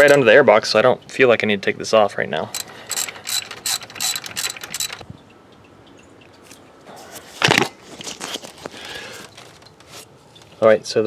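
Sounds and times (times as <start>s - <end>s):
ratchet clicking: 0.0s - 0.2s, 2.5s - 5.0s
metallic clatter: 2.5s - 5.1s.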